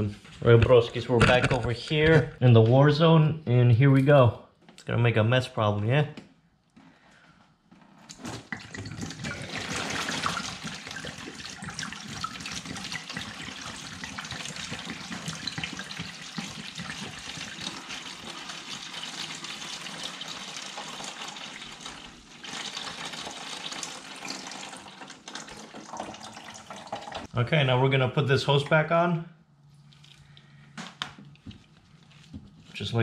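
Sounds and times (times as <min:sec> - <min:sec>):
coolant splashing into drain pan: 0:08.4 - 0:27.3.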